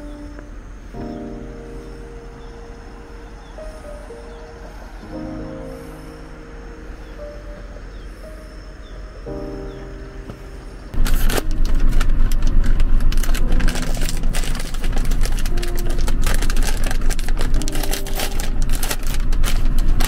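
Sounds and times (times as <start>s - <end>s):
foil snack bag crinkling: 11.0s - 20.0s.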